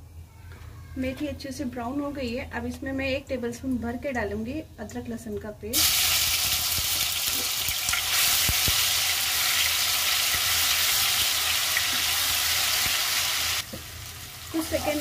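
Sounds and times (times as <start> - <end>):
paste sizzling in hot oil: 5.8 - 15.0.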